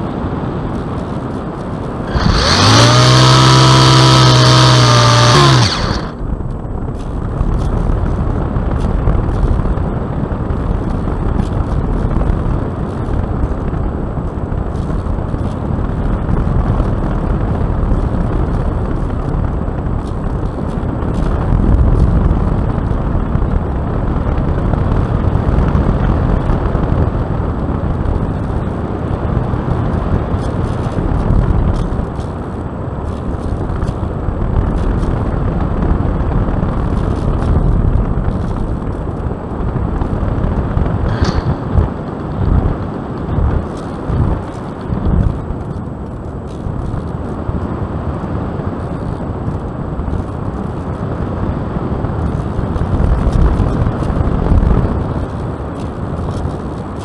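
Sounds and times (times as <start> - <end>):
rush of airflow and wind: 0.0 - 57.0.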